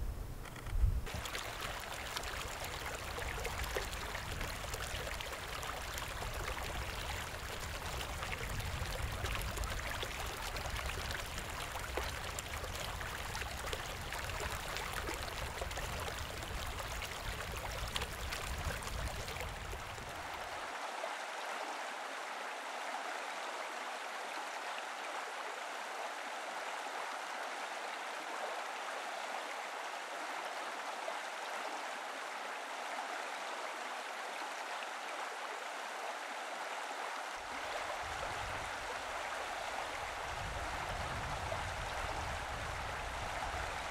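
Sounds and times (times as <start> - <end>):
water washing at shore: 1.1 - 20.5.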